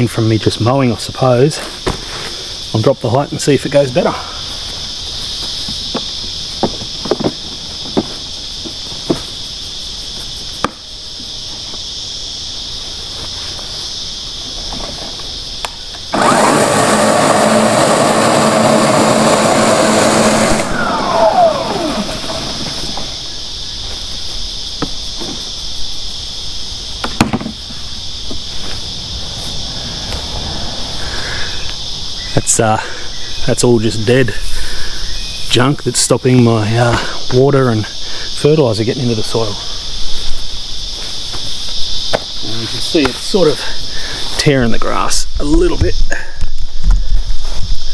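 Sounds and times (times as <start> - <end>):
high insect drone: 0.0 - 47.9
motor winding down whine: 15.9 - 23.4
scarifier motor running: 16.1 - 23.3.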